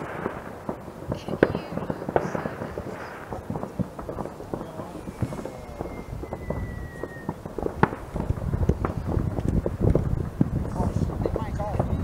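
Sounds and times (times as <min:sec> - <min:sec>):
distant fireworks pops and bangs: 0:00.0 - 0:12.0
sharp firework crack: 0:00.0 - 0:12.0
thin falling whistle: 0:04.8 - 0:07.4.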